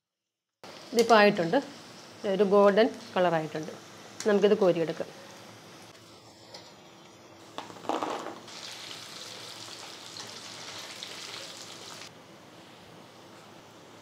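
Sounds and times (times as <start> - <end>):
chicken sizzling in hot oil: 8.5 - 12.1.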